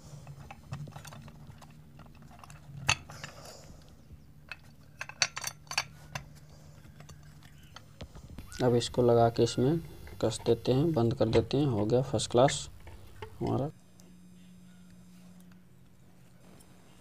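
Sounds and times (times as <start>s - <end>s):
light housing parts clicking: 0.2s - 8.1s.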